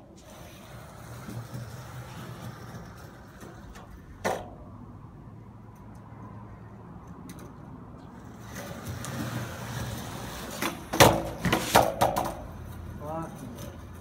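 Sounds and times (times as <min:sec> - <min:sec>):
skateboard cracking: 0:00.0 - 0:04.6, 0:08.2 - 0:14.0
skateboard wheels rolling on concrete: 0:00.0 - 0:14.0
board and rider hitting ground: 0:00.1 - 0:04.6, 0:08.4 - 0:12.6.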